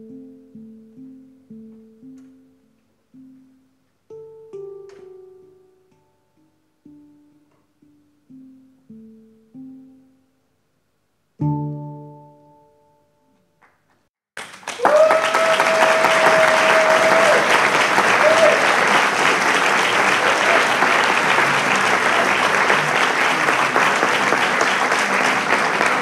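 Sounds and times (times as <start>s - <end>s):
handpan notes ringing: 11.4s - 13.1s
audience applause: 14.4s - 26.0s.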